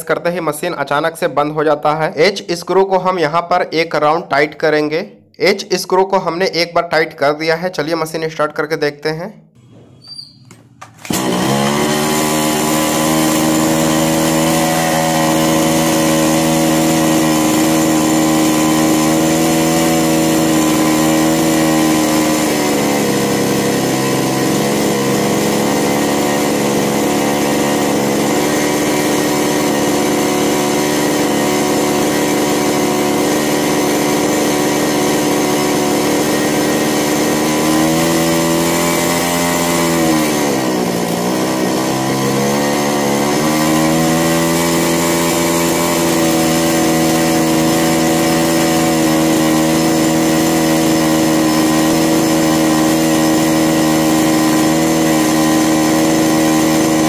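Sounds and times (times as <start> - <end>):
chainsaw engine running: 10.7 - 57.0.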